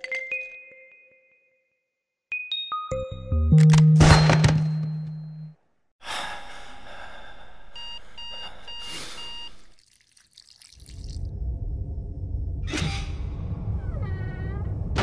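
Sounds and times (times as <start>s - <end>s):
high alarm beeps: 7.8s - 9.6s
low rumble: 11.3s - 15.0s.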